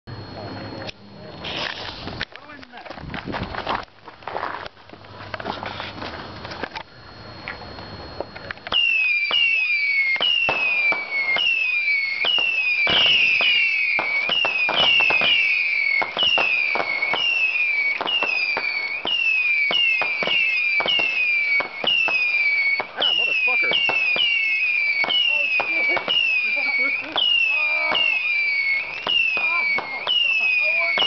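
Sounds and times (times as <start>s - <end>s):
whistling rockets launching: 8.6s - 31.0s
firework cracks: 8.7s - 31.0s.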